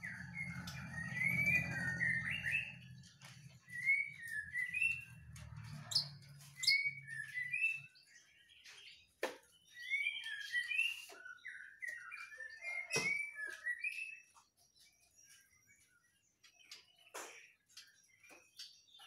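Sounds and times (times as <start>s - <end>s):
bird singing whistled phrases: 3.6s - 5.1s, 5.9s - 8.2s, 9.6s - 14.5s.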